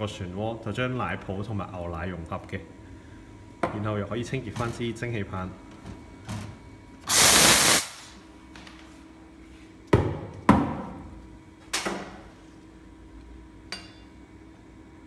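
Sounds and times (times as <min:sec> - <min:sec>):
steam wand hiss: 0:07.1 - 0:08.1.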